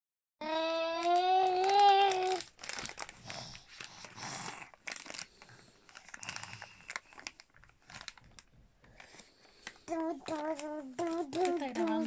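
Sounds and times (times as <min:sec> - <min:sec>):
baby crying: 0:00.4 - 0:02.4
crinkling of thin sheet: 0:00.4 - 0:12.0.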